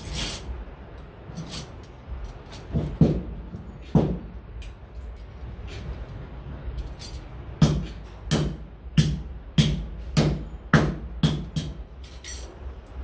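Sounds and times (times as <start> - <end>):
hammer striking iron on anvil: 7.6 - 12.4.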